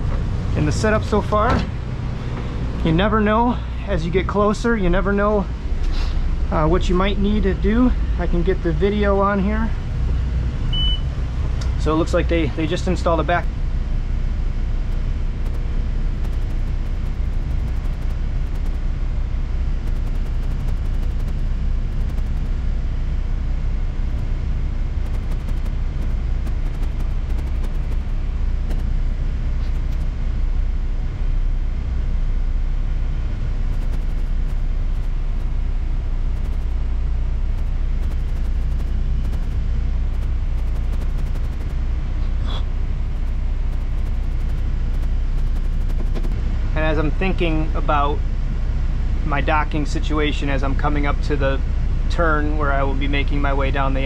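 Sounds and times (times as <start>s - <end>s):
boat engines humming: 12.3s - 49.2s.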